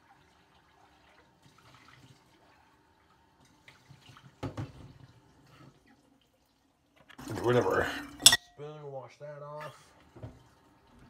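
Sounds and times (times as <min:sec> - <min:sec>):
tap running into sink: 0:04.4 - 0:05.0.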